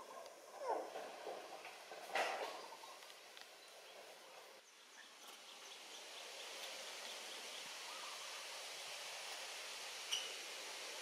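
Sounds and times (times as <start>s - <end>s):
background hiss: 0.0s - 11.0s.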